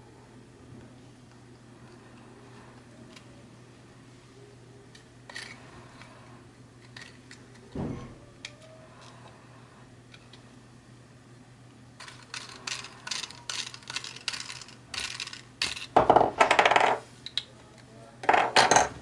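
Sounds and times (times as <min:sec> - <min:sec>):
plastic parts clicking and rattling: 0:04.9 - 0:05.6, 0:06.8 - 0:07.8, 0:12.0 - 0:17.5.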